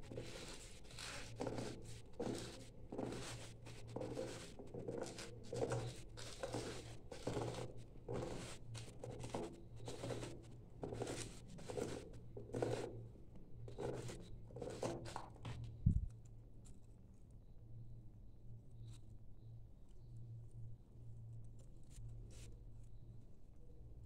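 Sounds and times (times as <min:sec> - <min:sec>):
steady low hum: 0:15.7 - 0:16.2.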